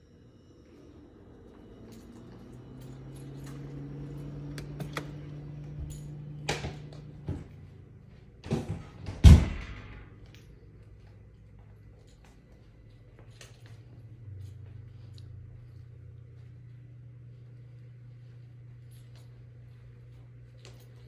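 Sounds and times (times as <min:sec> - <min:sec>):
low steady hum: 0:00.0 - 0:21.0
house door bumping: 0:08.4 - 0:10.1.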